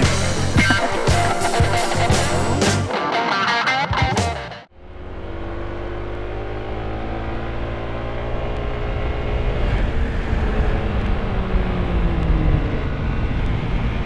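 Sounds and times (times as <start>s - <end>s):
scooter engine running: 0.0s - 2.6s.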